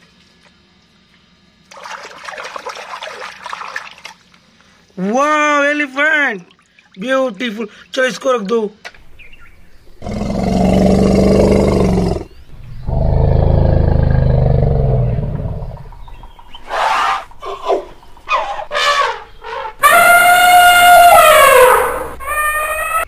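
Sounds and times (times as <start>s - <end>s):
elephant rumbling roars: 9.9s - 22.2s
elephant trumpeting: 16.6s - 23.0s.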